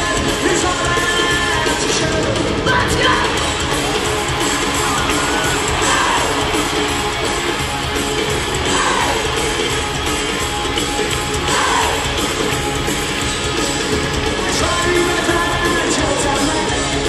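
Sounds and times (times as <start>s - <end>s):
lead vocal singing: 0.0s - 3.6s, 8.6s - 9.6s, 11.4s - 12.2s, 14.4s - 17.0s
bass guitar: 0.0s - 17.0s
drums: 0.0s - 17.0s
electric guitar: 0.0s - 17.0s.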